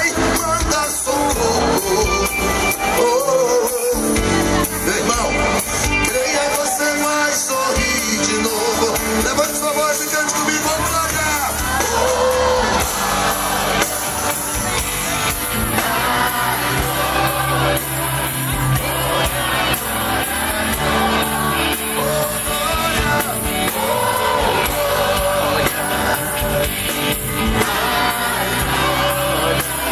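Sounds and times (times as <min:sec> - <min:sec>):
man singing into microphone: 0:00.0 - 0:13.0, 0:15.8 - 0:29.9
live gospel band: 0:00.0 - 0:29.9
electric bass: 0:10.8 - 0:29.9.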